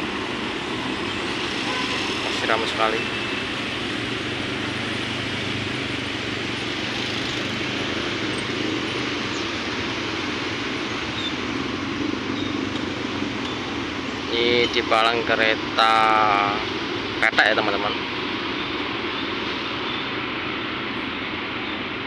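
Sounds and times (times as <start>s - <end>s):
motorcycles idling: 0.0s - 22.0s.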